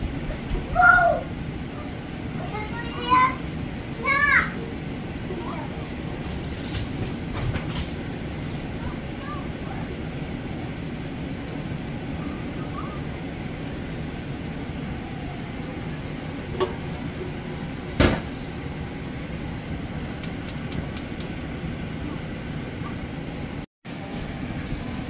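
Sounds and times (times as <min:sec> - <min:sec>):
sharp click: 0:20.2 - 0:21.3.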